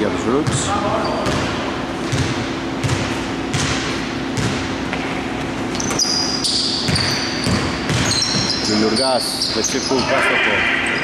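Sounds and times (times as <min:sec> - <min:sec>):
sneaker squeaks: 0:00.4 - 0:11.0
basketball dribbling on wooden floor: 0:02.1 - 0:04.7, 0:06.9 - 0:08.6.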